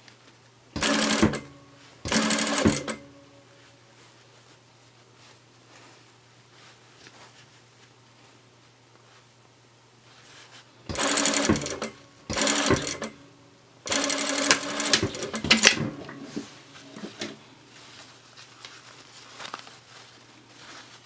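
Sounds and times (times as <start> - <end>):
sewing machine stitching: 0.8 - 3.1, 10.9 - 13.2, 13.9 - 17.4
fabric rustling: 2.8 - 9.4, 15.1 - 21.0.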